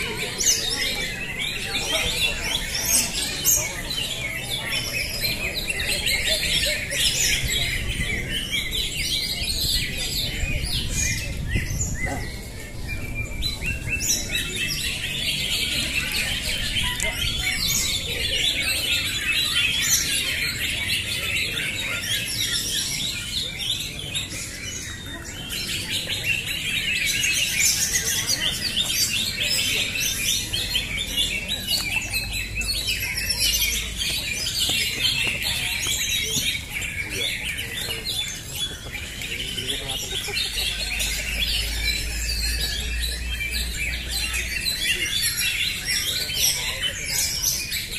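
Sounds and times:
caged birds singing: 0.0s - 47.9s.

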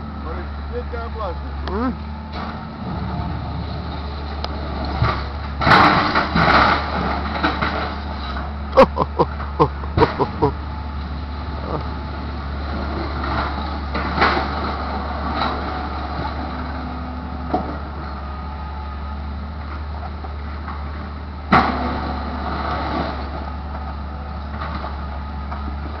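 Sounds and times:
car engine drone: 0.0s - 15.4s.

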